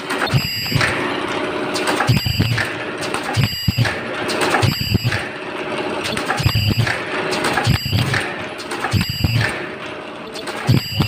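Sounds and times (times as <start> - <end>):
machine mechanical clatter: 0.0 - 11.0
machine stroke thump and ringing: 8.9 - 9.6.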